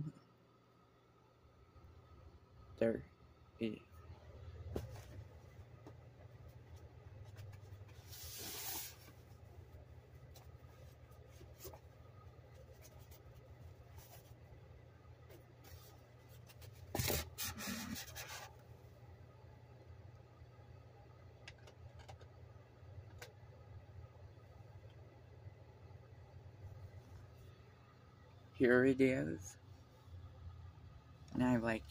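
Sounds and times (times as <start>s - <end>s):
low steady hum: 0.0s - 31.9s
rubbing and scraping handling noise: 4.5s - 18.8s.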